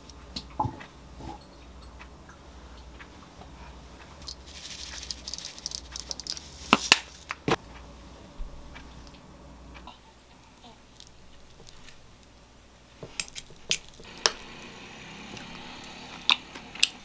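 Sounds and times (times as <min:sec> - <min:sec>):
seeds pattering into a bowl: 0:04.1 - 0:07.6, 0:10.9 - 0:12.4, 0:13.0 - 0:14.7.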